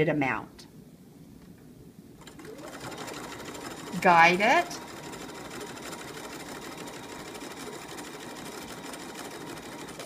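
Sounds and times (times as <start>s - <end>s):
sewing machine running: 2.2s - 10.0s.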